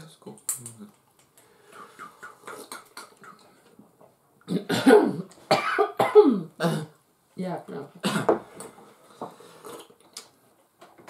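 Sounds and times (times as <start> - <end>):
person coughing loudly: 4.5 - 7.0, 8.0 - 8.4
person sipping: 9.0 - 10.3.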